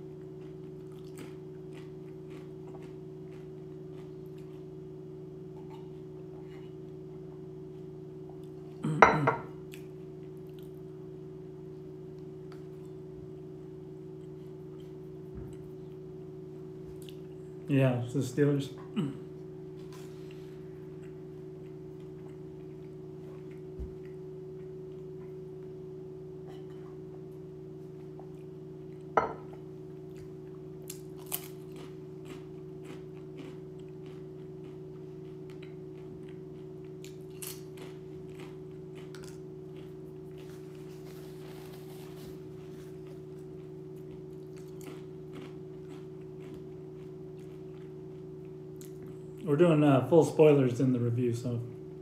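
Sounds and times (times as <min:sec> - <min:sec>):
steady low hum: 0:00.0 - 0:52.0
crunching tortilla chips: 0:30.2 - 0:49.0.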